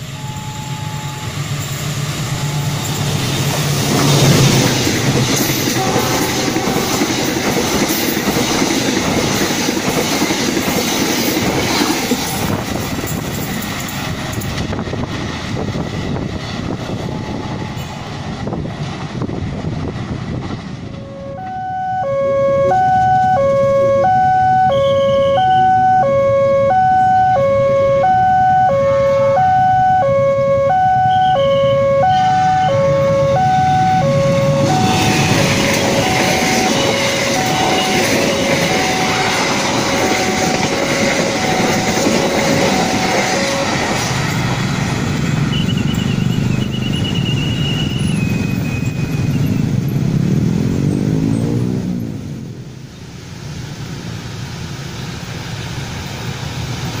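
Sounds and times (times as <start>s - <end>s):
level crossing alarm two tones: 0.0s - 1.4s, 21.0s - 43.7s
passing train rumble: 0.0s - 57.0s.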